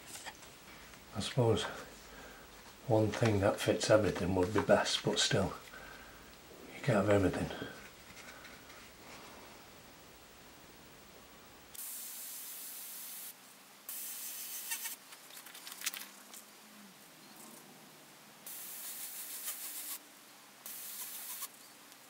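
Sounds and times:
airbrush spraying hiss: 11.8 - 15.0, 18.4 - 20.0, 20.6 - 21.5.

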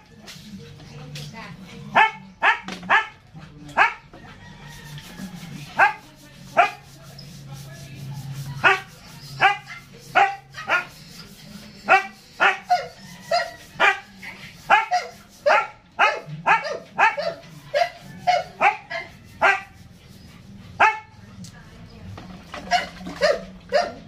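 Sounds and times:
dog barking: 1.9 - 3.2, 3.8 - 4.1, 5.8 - 6.0, 6.6 - 6.8, 8.6 - 11.0, 11.9 - 14.1, 14.7 - 19.8, 20.8 - 21.2, 22.6 - 24.0.

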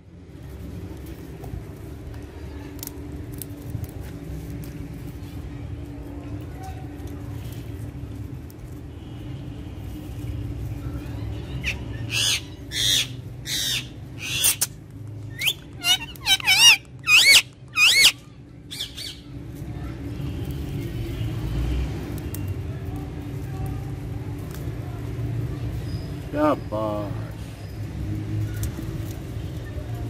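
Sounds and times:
parakeet squawking: 11.6 - 14.7, 15.3 - 19.2.

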